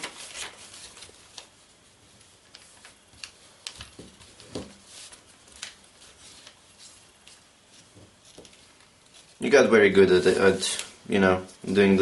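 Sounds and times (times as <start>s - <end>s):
paper crackling while folded: 0.0s - 11.0s.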